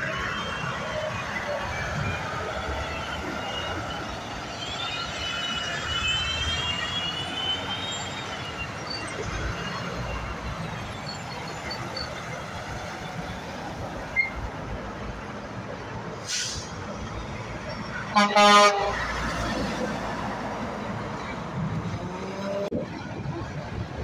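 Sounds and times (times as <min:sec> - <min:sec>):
short hiss: 0:16.2 - 0:16.8
truck horn blast: 0:18.1 - 0:19.2.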